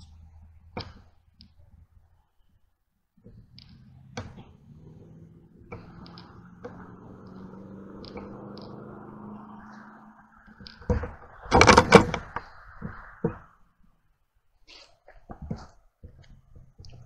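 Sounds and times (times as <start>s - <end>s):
vehicle engine humming: 0.0s - 14.1s
light clicks and ticks: 5.7s - 8.8s.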